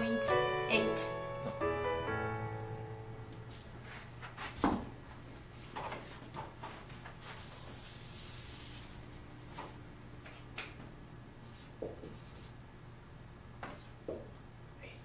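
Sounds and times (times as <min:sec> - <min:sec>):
marker rubbing on whiteboard: 0:07.2 - 0:09.1, 0:11.4 - 0:12.6, 0:13.6 - 0:14.0.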